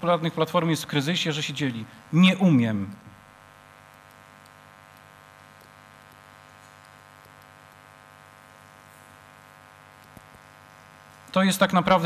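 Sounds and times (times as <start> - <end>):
low electrical hum: 0.0 - 12.0
faint ticks: 3.8 - 8.0, 9.9 - 10.5.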